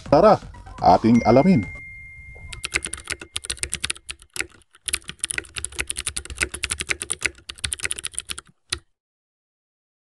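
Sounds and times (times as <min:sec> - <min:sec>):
keyboard key clicks: 0:02.5 - 0:08.8.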